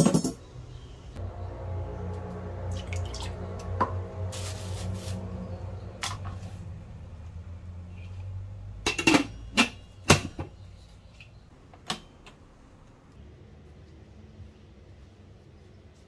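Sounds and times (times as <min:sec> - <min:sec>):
low hum: 0:01.1 - 0:08.6.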